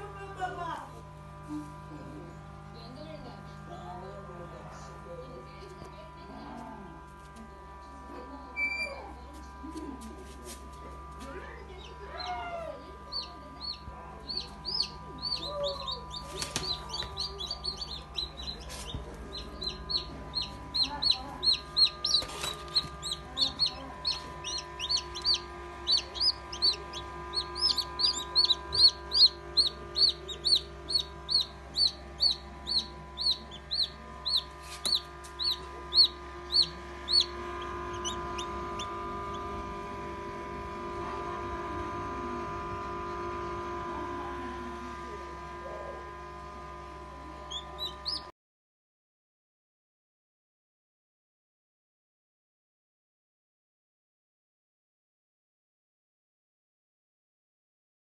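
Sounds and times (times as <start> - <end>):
chicks peeping: 11.6 - 39.7, 47.4 - 48.3.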